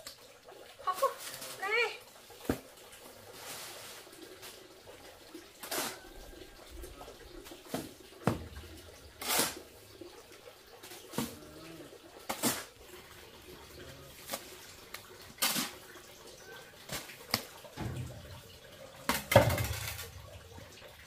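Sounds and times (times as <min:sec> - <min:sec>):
shovel scraping wet mortar: 0:09.2 - 0:09.6, 0:12.3 - 0:12.7.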